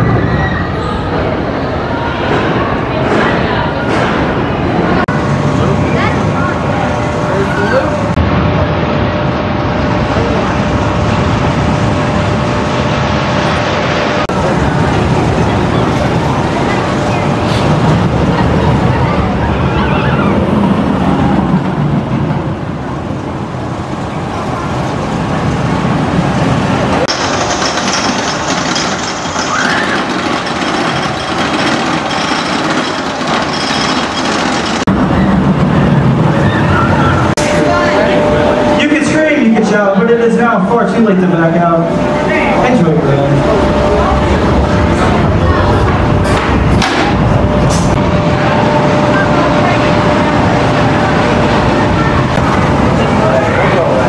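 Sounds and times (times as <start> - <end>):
roller coaster wheels rumbling on rails: 0.0 - 54.0
roller coaster chain lift rattle: 14.3 - 39.2.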